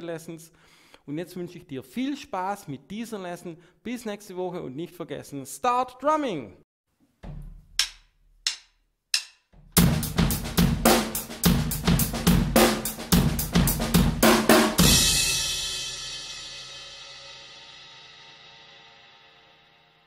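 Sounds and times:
drum hits: 7.2s - 8.6s, 9.2s - 16.2s
cymbal crash: 14.7s - 19.8s.

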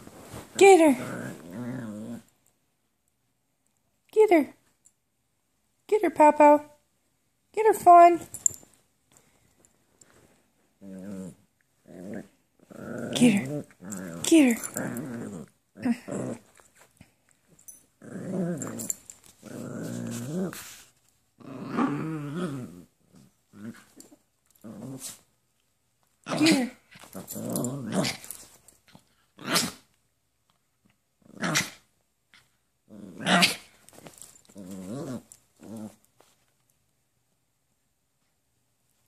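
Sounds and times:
small dogs growling: 0.9s - 2.4s, 10.8s - 16.6s, 18.0s - 20.8s, 21.4s - 25.2s, 26.2s - 28.4s, 32.9s - 33.8s, 34.4s - 36.1s.

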